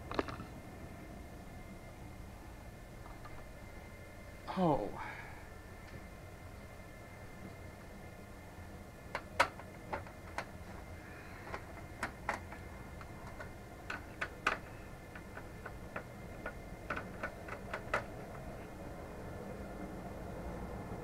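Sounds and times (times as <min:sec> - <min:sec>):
faint steady hum: 0:00.0 - 0:21.0
light clicks handling computer parts: 0:09.1 - 0:18.6.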